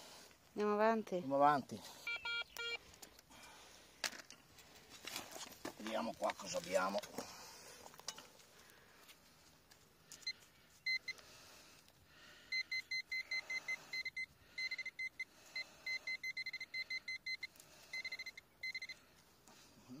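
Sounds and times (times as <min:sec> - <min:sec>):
metal detector beeping: 0:02.0 - 0:02.8, 0:10.2 - 0:11.2, 0:12.5 - 0:19.0.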